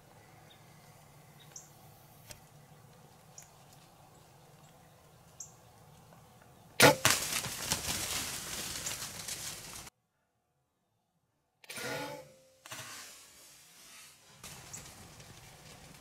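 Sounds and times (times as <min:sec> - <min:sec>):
arrow striking: 0:06.8 - 0:07.5, 0:11.7 - 0:13.2
deer hooves crashing through brush: 0:06.8 - 0:09.9, 0:14.4 - 0:16.0.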